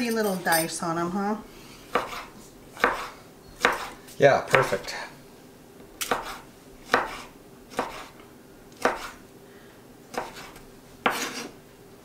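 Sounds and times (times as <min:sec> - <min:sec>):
knife chopping on wooden board: 0:01.9 - 0:04.9, 0:06.0 - 0:08.2, 0:08.8 - 0:09.2, 0:10.1 - 0:11.5.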